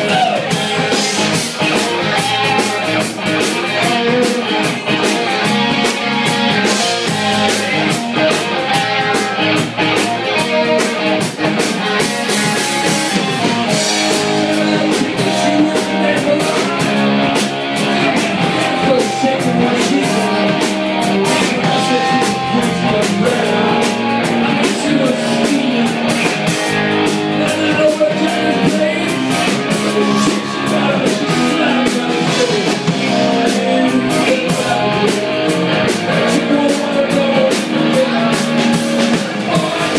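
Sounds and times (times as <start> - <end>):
man singing into a microphone: 0.0 - 1.5, 3.6 - 5.8, 13.4 - 39.9
drum kit: 0.0 - 39.9
electric guitar: 0.0 - 39.9.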